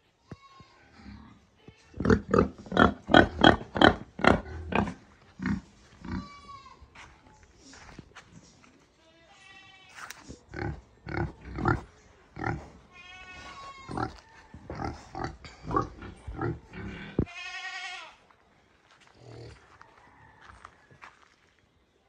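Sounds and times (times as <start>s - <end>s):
pigs grunting: 2.0s - 6.2s, 10.2s - 17.3s, 19.1s - 19.8s.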